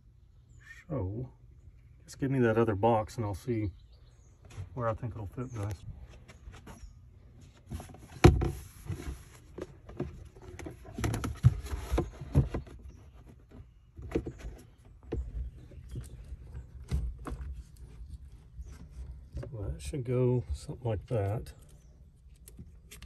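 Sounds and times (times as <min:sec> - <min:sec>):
battery box knocking and scraping: 0:07.6 - 0:17.9.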